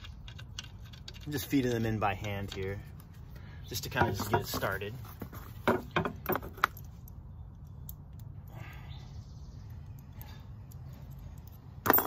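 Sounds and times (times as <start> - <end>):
small metal clicks: 0.0 - 3.2, 6.0 - 8.5
low steady rumble: 0.0 - 12.0.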